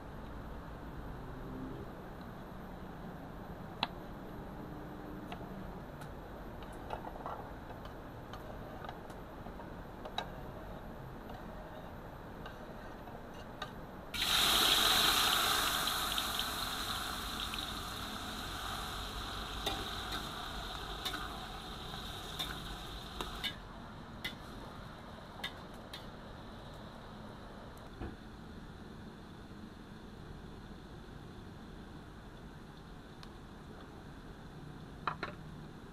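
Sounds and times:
potatoes sizzling in hot oil: 14.2s - 23.6s.

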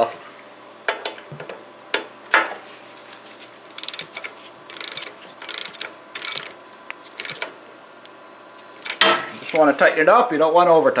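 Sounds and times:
ratchet wrench clicking: 3.8s - 6.6s, 7.2s - 7.5s.

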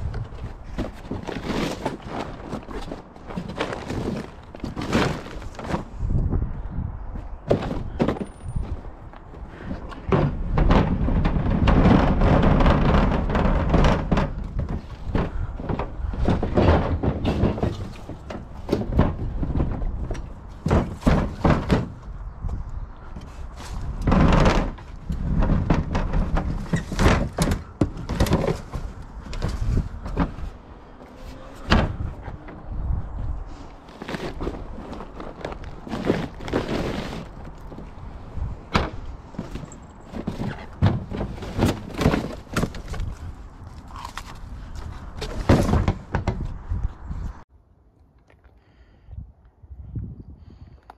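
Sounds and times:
plastic bins knocking together: 0.3s - 6.0s, 10.0s - 22.1s, 23.9s - 30.5s, 38.7s - 43.2s, 45.2s - 46.5s
bin wheels rattling on pavement: 9.9s - 22.2s, 23.3s - 32.1s, 33.8s - 43.4s.

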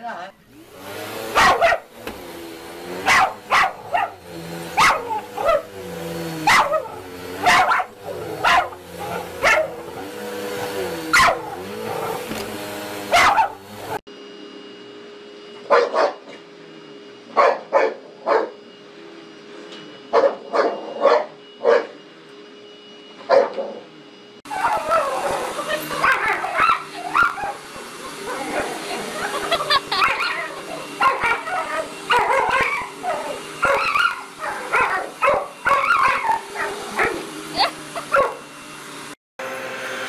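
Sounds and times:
vacuum cleaner motor humming: 0.1s - 40.0s
dogs barking sharply: 1.3s - 2.0s, 3.0s - 4.2s, 4.8s - 5.7s, 6.4s - 10.1s, 10.9s - 12.4s, 13.1s - 13.6s, 15.7s - 16.3s, 17.4s - 18.5s, 24.5s - 28.8s, 29.6s - 38.4s.

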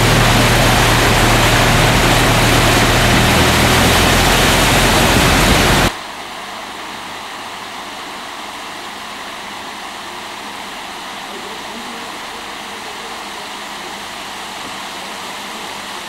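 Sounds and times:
floodwater rushing: 0.0s - 5.9s
low hum: 0.0s - 5.9s.

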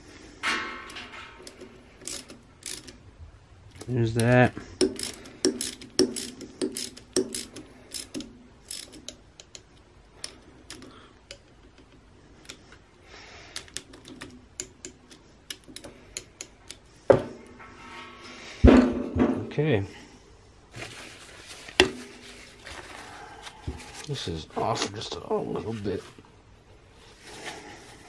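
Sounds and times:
socket ratchet clicking: 1.4s - 3.0s, 3.7s - 12.6s, 13.5s - 16.8s
tool knocking when set down: 18.6s - 19.5s.

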